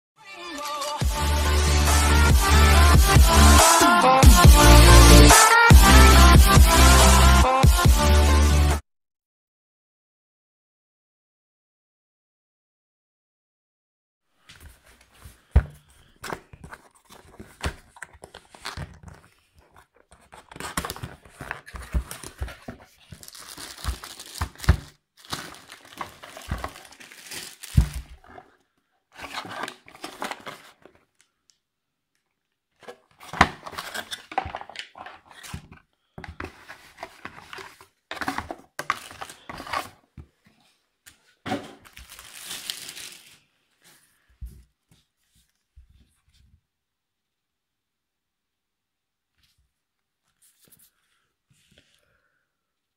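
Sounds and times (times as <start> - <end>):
cardboard and plastic rustling: 14.4 - 31.2, 32.8 - 46.4.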